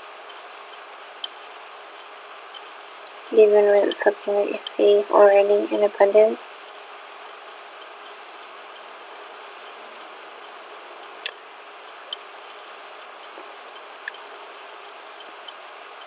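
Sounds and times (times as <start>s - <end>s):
low hiss of room tone: 0.0s - 16.0s.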